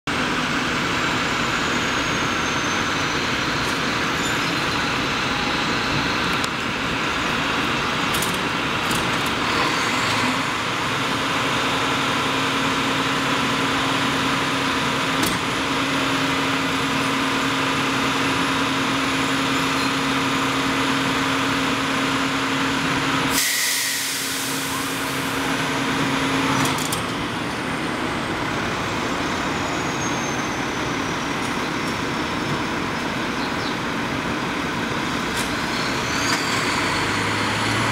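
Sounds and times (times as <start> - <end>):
air brakes hissing: 23.3 - 25.5.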